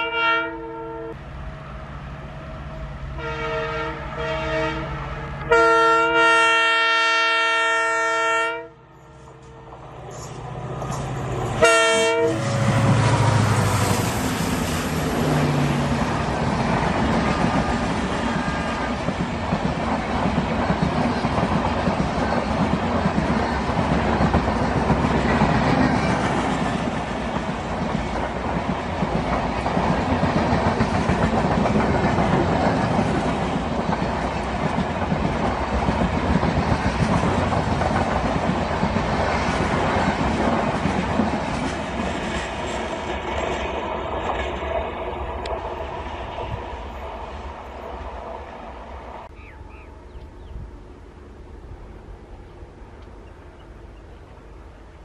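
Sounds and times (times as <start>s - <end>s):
train horn blast: 0.0s - 1.7s, 2.5s - 8.9s, 11.5s - 14.0s
diesel locomotive rumble: 8.8s - 55.0s
train coaches clickety-clack: 9.0s - 48.5s.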